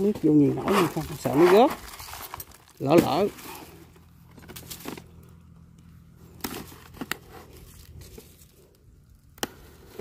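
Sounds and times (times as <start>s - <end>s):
low steady hum: 0.0s - 10.0s
bag crinkling: 0.6s - 5.2s.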